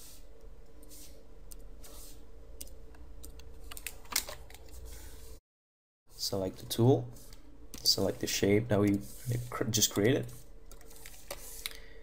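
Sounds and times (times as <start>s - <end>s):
keyboard and mouse clicks: 2.6s - 4.8s
faint electrical hum: 6.1s - 12.0s.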